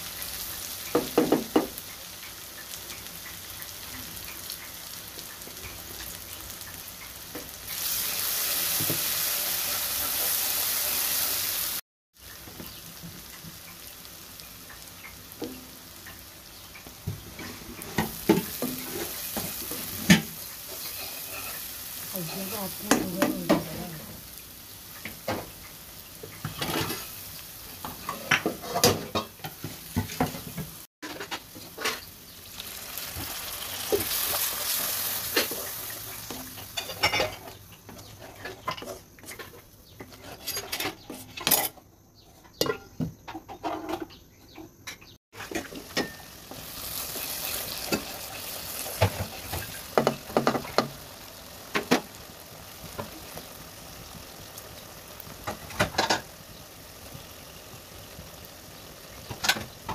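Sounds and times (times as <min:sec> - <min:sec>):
food sizzling in a pan: 0:00.0 - 0:40.7, 0:45.3 - 0:59.9
wooden spatula scraping a pan: 0:17.4 - 0:24.0, 0:26.4 - 0:27.2, 0:27.8 - 0:32.1, 0:33.9 - 0:41.7.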